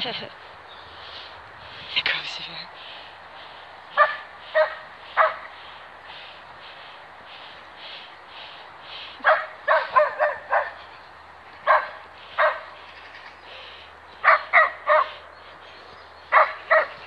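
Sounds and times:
dog barking: 4.0s - 5.5s, 9.2s - 10.8s, 11.6s - 12.7s, 14.2s - 15.2s, 16.3s - 17.0s.

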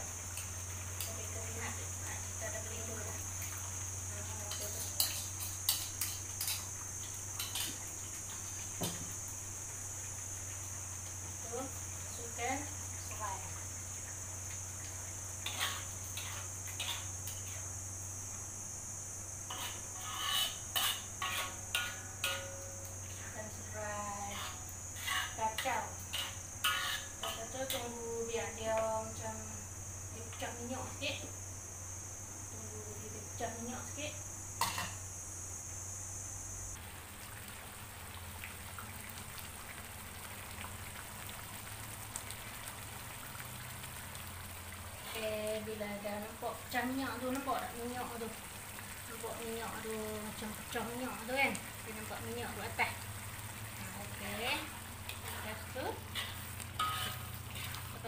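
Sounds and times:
paste sizzling in oil: 0.0s - 31.0s, 36.7s - 58.0s
metal spatula scraping a wok: 4.5s - 6.6s, 15.4s - 17.6s, 19.5s - 22.6s, 24.3s - 27.5s, 56.1s - 58.0s.

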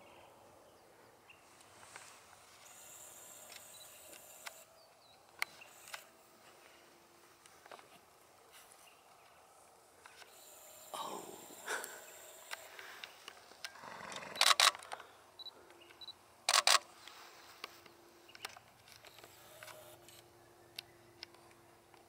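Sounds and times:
soft rustling: 5.5s - 10.2s.

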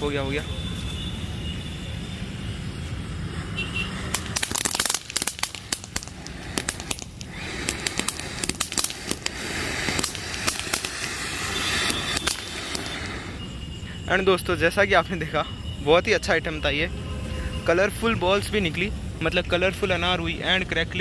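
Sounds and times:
firework spray hissing: 0.4s - 14.1s
sharp crackling pops: 3.9s - 13.2s.

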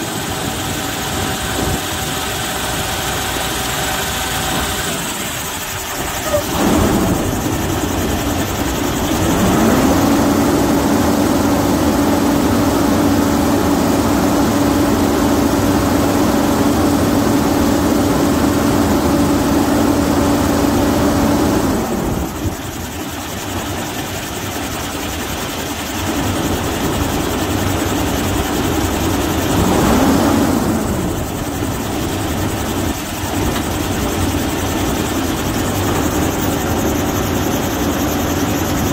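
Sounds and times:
diesel truck engine: 0.0s - 38.9s
steady whine: 0.0s - 38.9s
engine revving: 8.5s - 14.1s, 29.4s - 31.4s.

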